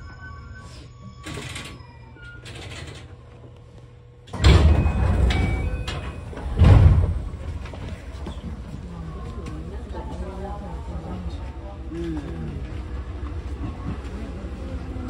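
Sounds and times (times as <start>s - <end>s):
train brake squeal: 0.0s - 2.7s.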